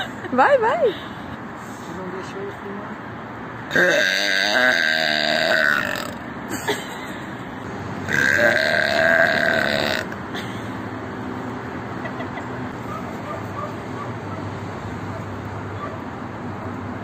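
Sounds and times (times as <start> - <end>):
woman burping loudly: 3.7 - 6.2, 8.1 - 10.2.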